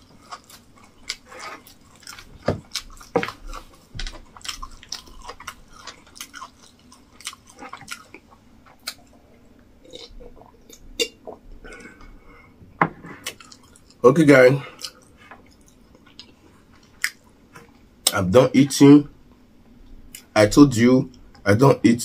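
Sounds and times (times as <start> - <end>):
person chewing food: 0.0 - 12.5, 13.2 - 14.0, 14.7 - 17.9.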